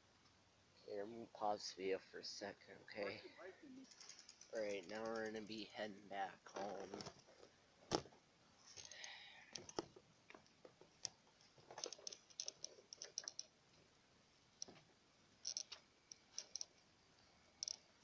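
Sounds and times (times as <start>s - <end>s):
phone rattling on handlebar: 3.9s - 5.6s.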